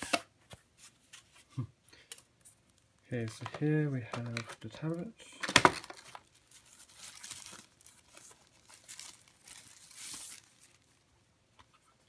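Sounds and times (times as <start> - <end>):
plastic sleeve crinkling: 2.3 - 11.7.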